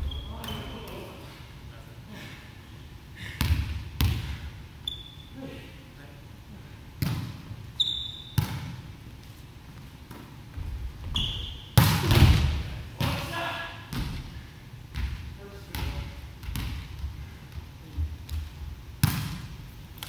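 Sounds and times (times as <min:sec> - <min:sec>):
sneakers squeaking on floor: 0:00.0 - 0:00.9, 0:04.8 - 0:05.4, 0:07.8 - 0:08.7, 0:10.6 - 0:11.8.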